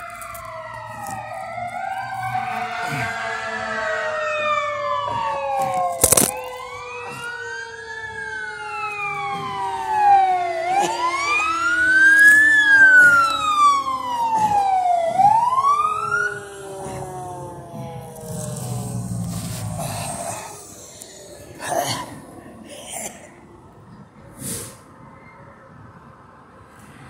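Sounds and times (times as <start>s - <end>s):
emergency vehicle siren wailing: 0.0s - 24.2s.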